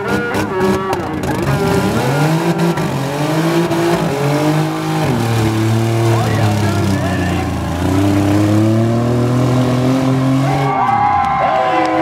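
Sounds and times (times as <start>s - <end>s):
car engine revving hard: 0.0s - 11.0s.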